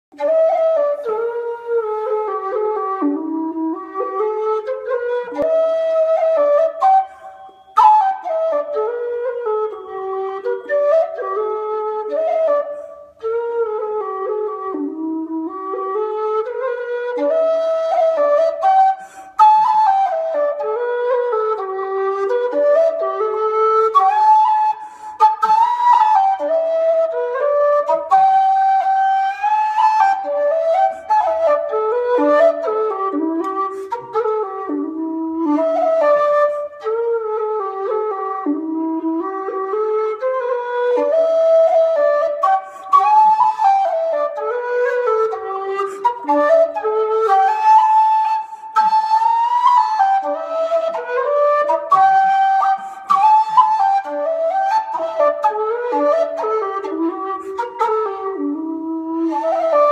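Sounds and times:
low whistle slow air: 6.6 - 11.1, 44.9 - 55.0.

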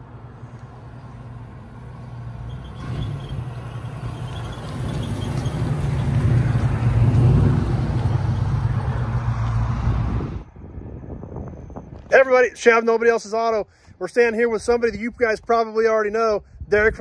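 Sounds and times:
car engine approaching: 0.0 - 12.0.

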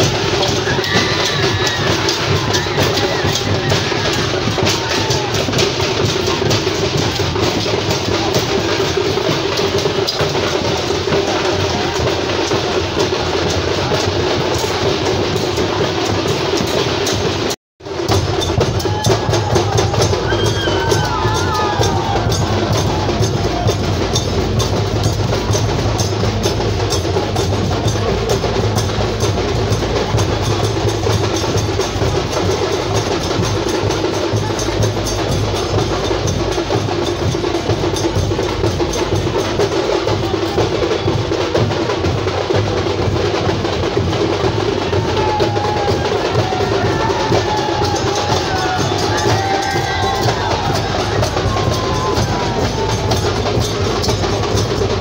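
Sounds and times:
fast drumming: 0.0 - 55.0.

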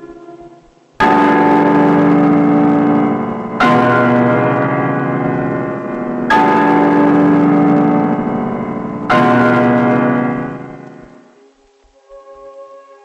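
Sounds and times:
deep bell strokes: 0.0 - 11.3.

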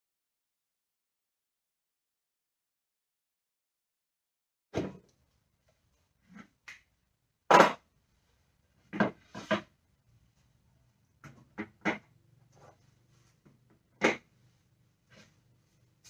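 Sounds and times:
tools and board clattering on workbench: 8.9 - 9.7.

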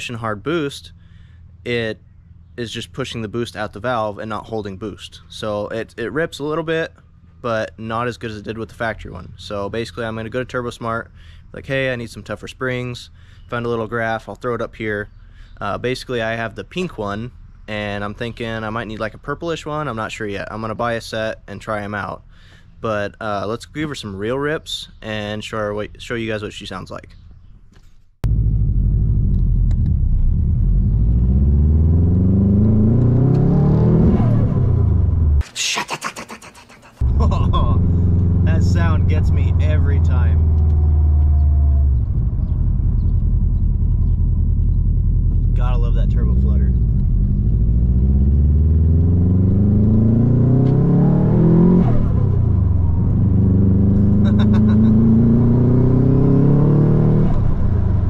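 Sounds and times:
car engine accelerating hard: 28.2 - 35.4, 37.0 - 58.0.

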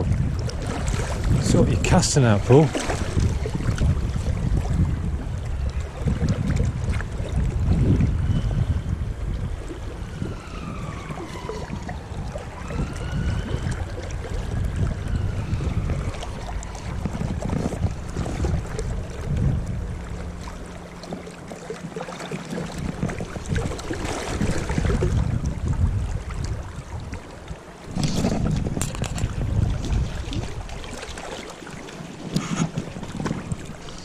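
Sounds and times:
river water rushing: 0.0 - 4.6
wind buffeting microphone: 0.0 - 34.0.

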